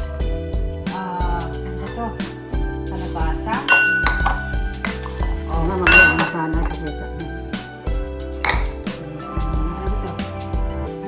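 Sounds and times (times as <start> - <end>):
background music: 0.0 - 11.0
dishware clinking on stone: 3.7 - 5.2, 5.8 - 6.8, 8.5 - 8.9.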